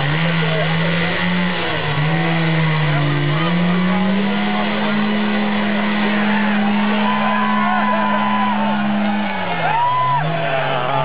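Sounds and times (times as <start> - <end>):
motorcycle engine revving: 0.0 - 10.4
crowd whooping and shouting: 4.1 - 11.0.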